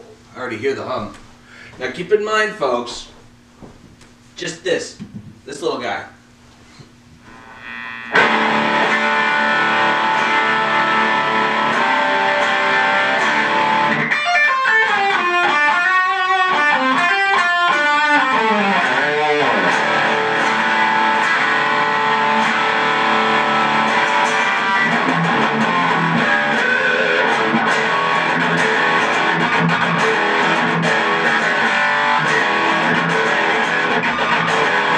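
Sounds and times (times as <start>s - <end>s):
distorted electric guitar: 7.2s - 34.9s.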